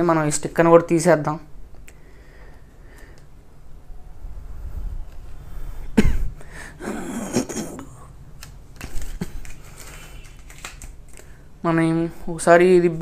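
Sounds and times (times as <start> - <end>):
plastic sticker being peeled: 8.4 - 11.3.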